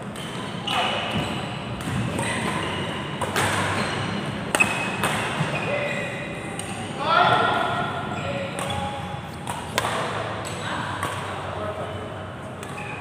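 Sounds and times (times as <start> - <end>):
racket hitting shuttlecock: 0.0 - 5.6, 8.5 - 11.5
shoes squeaking on court floor: 0.0 - 6.5, 8.0 - 9.8, 11.9 - 13.0.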